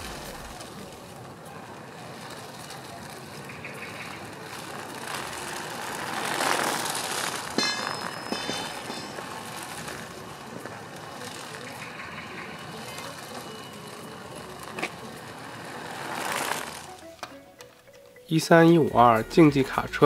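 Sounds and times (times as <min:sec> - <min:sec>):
toy car motor whirring: 0:00.0 - 0:17.8.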